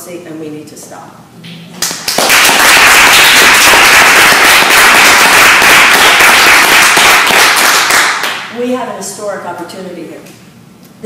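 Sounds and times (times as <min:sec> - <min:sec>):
audience applauding: 0:02.0 - 0:08.5.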